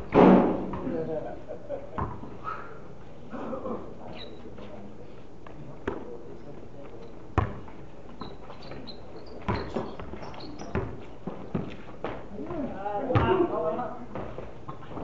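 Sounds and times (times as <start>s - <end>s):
basketball bouncing on concrete: 2.0s - 2.3s, 7.4s - 12.2s, 13.1s - 13.5s.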